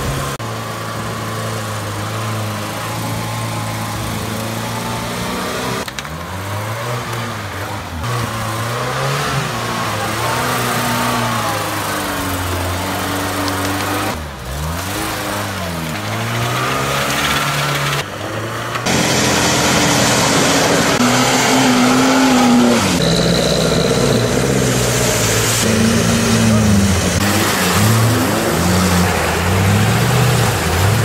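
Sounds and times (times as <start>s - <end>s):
off-road engines revving: 0.0s - 31.0s
water splashing against vehicle: 8.1s - 31.0s.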